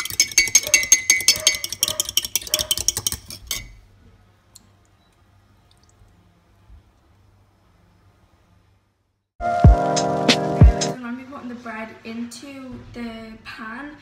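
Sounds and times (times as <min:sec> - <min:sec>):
fork whisking in ceramic bowl: 0:00.0 - 0:03.8.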